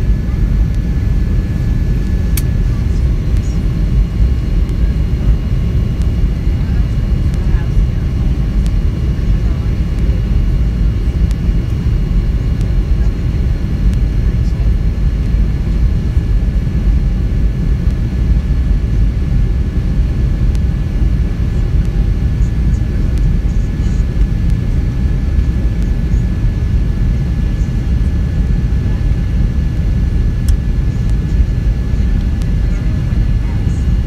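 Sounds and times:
jet engine and airflow rumble: 0.0 - 34.0.

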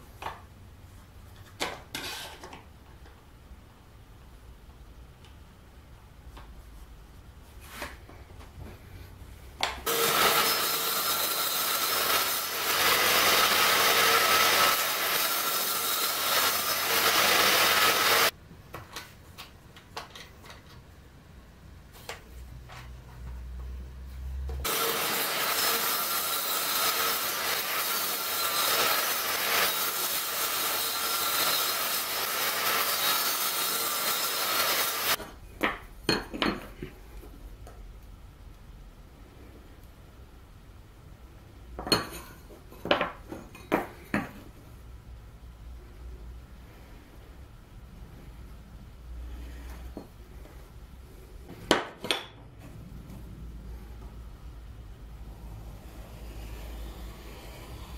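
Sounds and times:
saw cutting wood: 9.8 - 18.3, 24.6 - 35.2.

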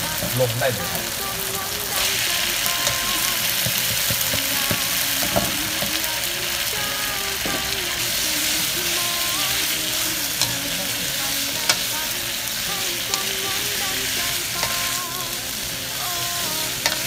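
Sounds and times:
food sizzling in a wok: 0.0 - 17.0
wooden spatula knocking pan: 3.6 - 6.0.

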